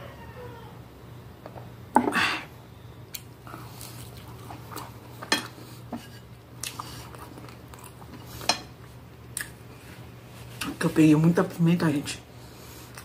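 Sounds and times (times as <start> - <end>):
person chewing and eating: 3.1 - 10.7.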